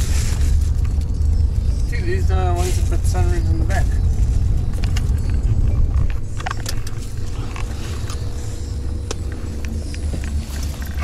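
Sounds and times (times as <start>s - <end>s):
car engine rumble inside cabin: 0.0s - 11.0s.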